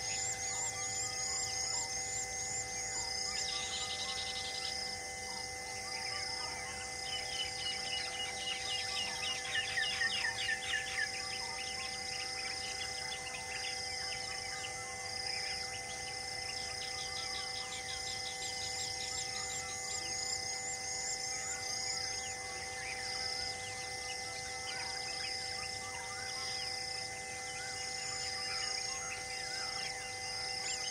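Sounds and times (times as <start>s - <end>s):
insects chirping: 0.0s - 30.9s.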